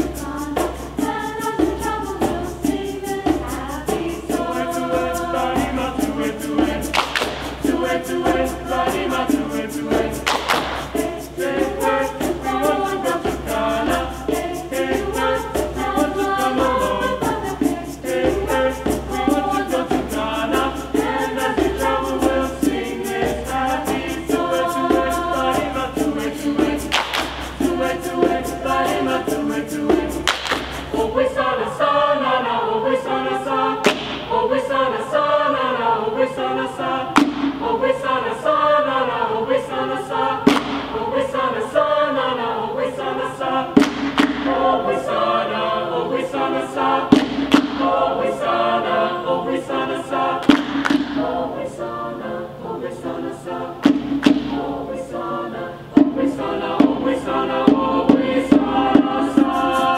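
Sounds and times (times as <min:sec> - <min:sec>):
mixed choir singing: 0:00.0 - 0:59.9
hand drum strokes: 0:53.8 - 0:54.7, 0:55.9 - 0:59.9.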